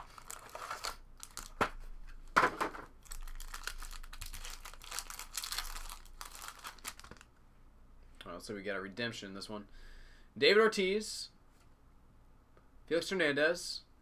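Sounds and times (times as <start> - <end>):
wrapper tearing: 0.0 - 1.6, 3.0 - 7.3
wrapper crinkling: 0.0 - 1.7, 3.0 - 7.3.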